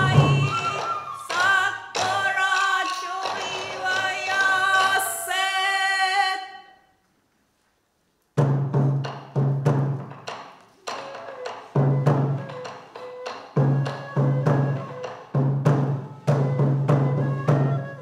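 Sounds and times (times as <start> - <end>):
person singing: 0.0 - 6.6.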